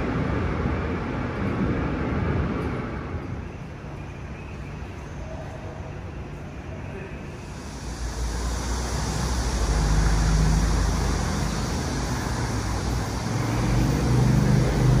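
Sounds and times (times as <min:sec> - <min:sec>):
cars driving past: 0:07.4 - 0:15.0.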